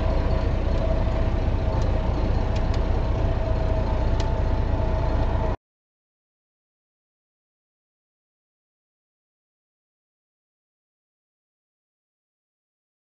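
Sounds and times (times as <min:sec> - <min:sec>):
tractor engine rumbling: 0:00.0 - 0:05.6.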